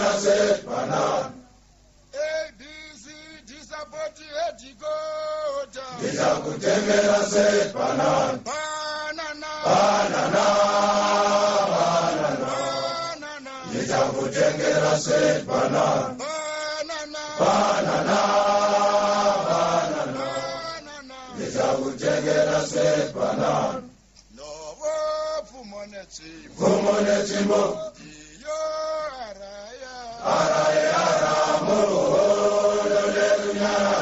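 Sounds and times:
men chanting together: 0:00.0 - 0:01.4, 0:05.9 - 0:08.5, 0:09.5 - 0:16.2, 0:17.1 - 0:23.9, 0:26.5 - 0:28.7, 0:30.2 - 0:34.0.

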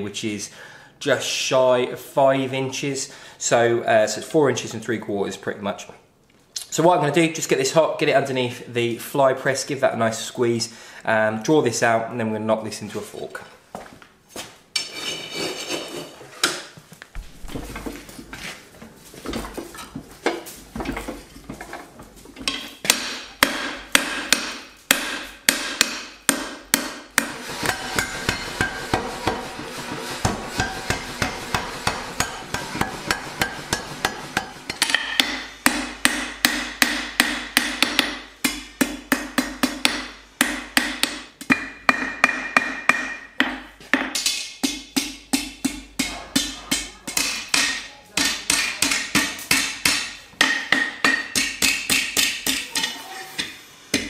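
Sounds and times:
hammer striking hot steel: 0:22.5 - 0:54.0.

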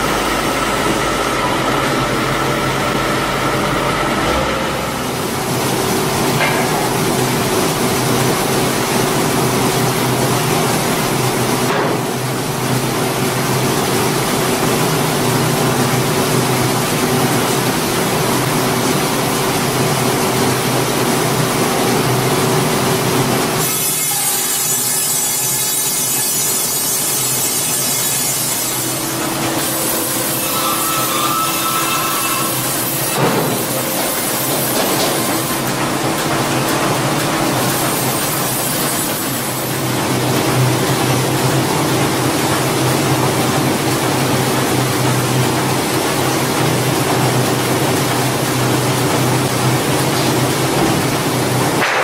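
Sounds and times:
machine hum: 0:00.0 - 0:23.8, 0:24.6 - 0:51.8
band saw rasping through log: 0:23.6 - 0:35.8, 0:37.6 - 0:39.9.

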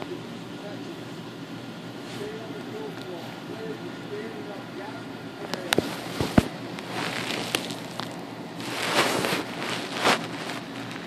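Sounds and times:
fabric and fur rustling: 0:05.5 - 0:11.0
kitten suckling: 0:05.5 - 0:11.0.

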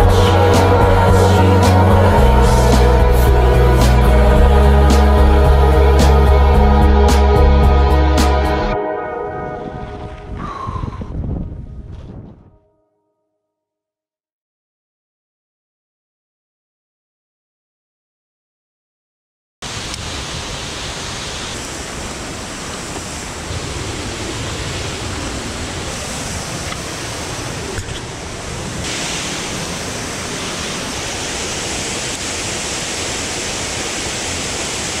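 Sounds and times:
rushing outdoor noise: 0:00.0 - 0:12.1, 0:19.6 - 0:35.0
uneven low rumble: 0:00.0 - 0:12.6.

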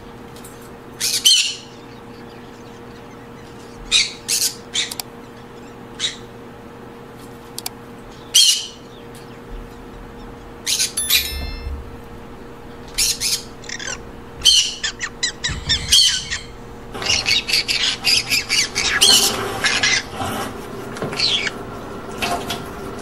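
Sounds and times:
parrots squawking: 0:12.9 - 0:21.6.

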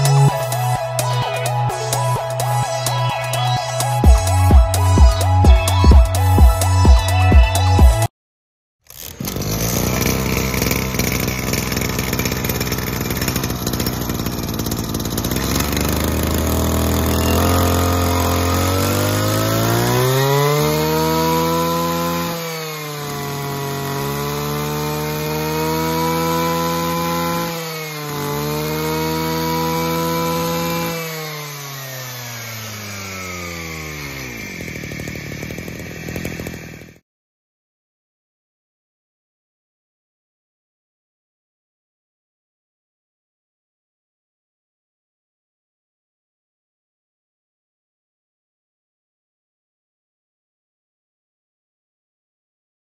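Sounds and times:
brush cutter engine revving: 0:00.0 - 0:08.1, 0:08.9 - 0:37.0.

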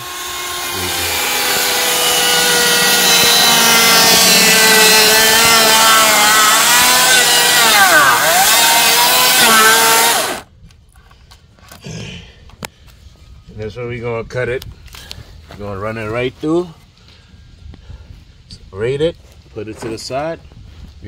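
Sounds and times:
electric chainsaw cutting wood: 0:00.0 - 0:10.5.

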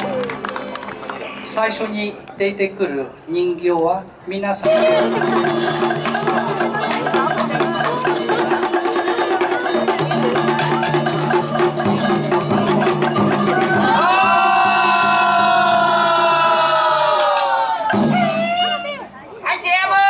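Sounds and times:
rapid clicking percussion: 0:04.6 - 0:14.8.

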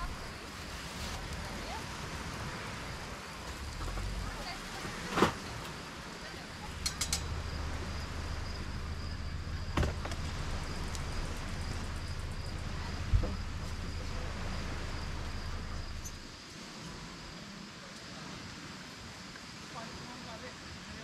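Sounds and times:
crickets trilling: 0:00.0 - 0:21.0
low rumble: 0:01.0 - 0:17.4.

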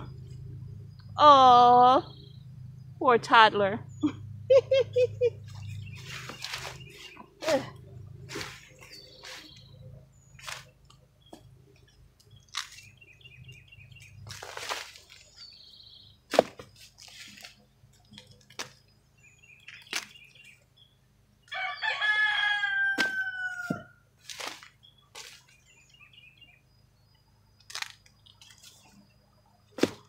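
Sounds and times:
corn stalks snapping and rustling: 0:05.5 - 0:07.6, 0:08.3 - 0:09.6, 0:10.4 - 0:11.0, 0:12.2 - 0:13.0, 0:14.0 - 0:15.4, 0:16.3 - 0:18.8, 0:19.6 - 0:20.2, 0:24.2 - 0:25.6, 0:27.6 - 0:28.8, 0:29.8 - 0:30.0
rooster crowing: 0:21.5 - 0:24.0.

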